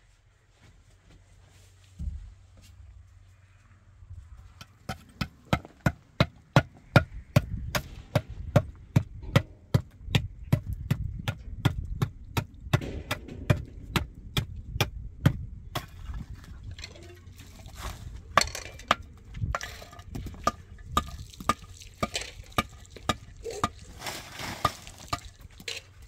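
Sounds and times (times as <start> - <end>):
hammer striking concrete block: 4.9 - 16.0.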